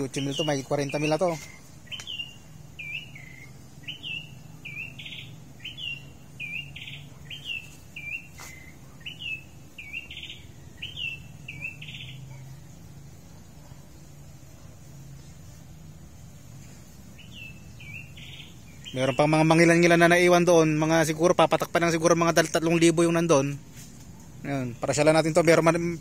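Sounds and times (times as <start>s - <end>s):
steady low hum: 0.0s - 19.2s
bird chirping and trilling: 0.0s - 26.0s.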